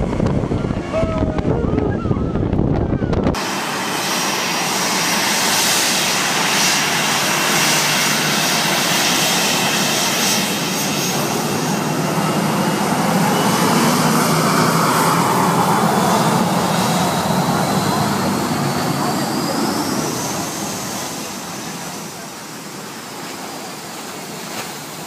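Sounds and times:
jet engines rushing with whine: 0:00.0 - 0:25.0.

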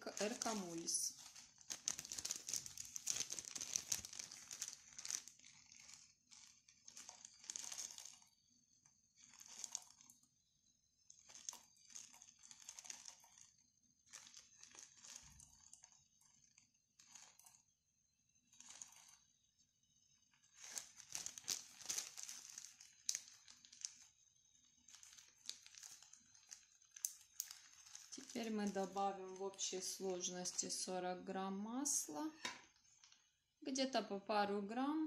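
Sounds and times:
plastic bag crinkling: 0:00.0 - 0:08.5, 0:09.1 - 0:10.3, 0:11.1 - 0:17.6, 0:18.6 - 0:19.2, 0:20.4 - 0:33.3.

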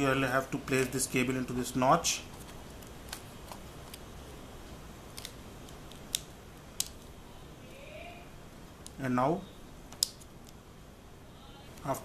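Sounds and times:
low steady hiss: 0:00.0 - 0:12.0.

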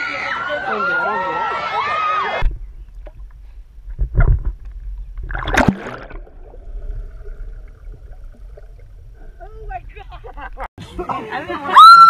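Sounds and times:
sea water sloshing and gurgling: 0:02.5 - 0:10.0
water splash: 0:04.0 - 0:09.4.

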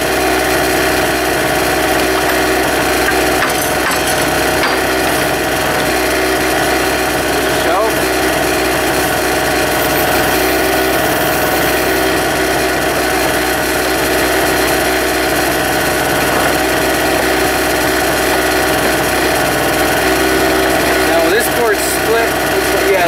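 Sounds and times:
small generator engine running: 0:00.0 - 0:23.0.

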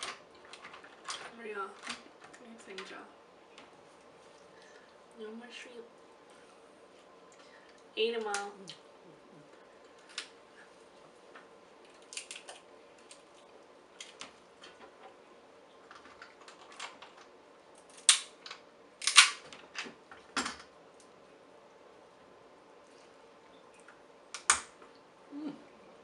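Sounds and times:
shellfish shells cracking: 0:11.8 - 0:14.3, 0:17.8 - 0:19.5.

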